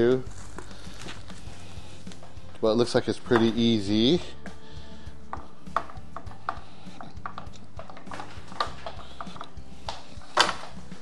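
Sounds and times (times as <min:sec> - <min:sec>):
plastic and metal parts clicking: 0:05.3 - 0:11.0.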